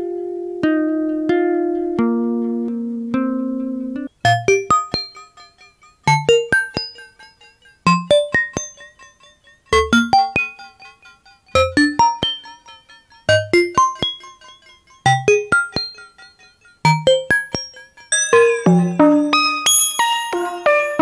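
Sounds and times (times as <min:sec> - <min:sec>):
synth bell-like notes: 0:04.3 - 0:21.0.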